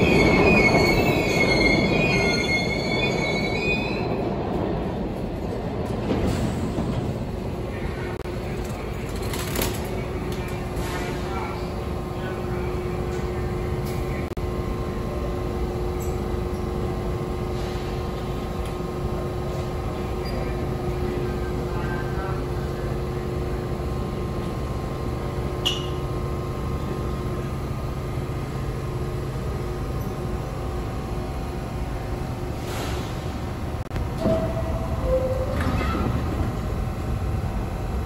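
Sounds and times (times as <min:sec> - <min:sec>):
station background noise: 0:00.0 - 0:38.0
subway train humming: 0:00.0 - 0:38.0.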